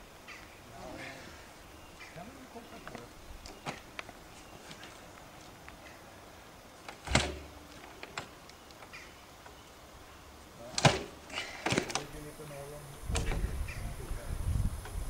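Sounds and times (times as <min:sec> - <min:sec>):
motorcycle kick-starter clank: 0:06.9 - 0:08.3, 0:10.7 - 0:12.1.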